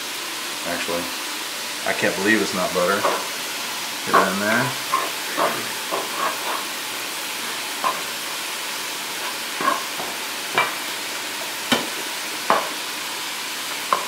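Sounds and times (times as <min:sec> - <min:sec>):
food sizzling in a skillet: 0:00.0 - 0:14.0
wooden spatula scraping a pan: 0:02.9 - 0:03.4, 0:04.1 - 0:12.8.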